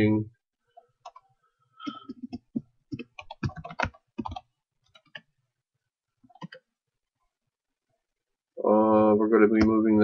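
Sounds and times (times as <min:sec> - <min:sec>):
typing on computer keyboard: 0:01.9 - 0:05.3, 0:06.3 - 0:06.6.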